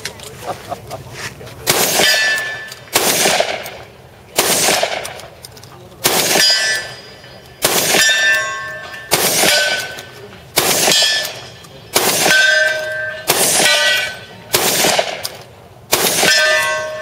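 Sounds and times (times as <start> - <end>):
shotgun shots: 1.6 - 5.3, 6.0 - 6.9, 7.6 - 8.2, 9.1 - 10.0, 10.6 - 16.6
steel target ringing: 1.8 - 2.9, 6.3 - 10.0, 10.8 - 14.4, 16.1 - 17.0.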